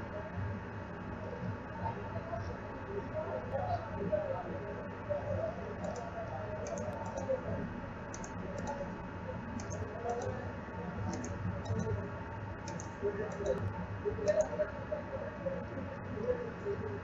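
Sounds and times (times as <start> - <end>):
low background hum: 0.0 - 17.0
mouse buttons clicking: 5.8 - 7.3, 8.1 - 8.8, 9.6 - 10.3, 11.1 - 11.9, 12.7 - 13.6.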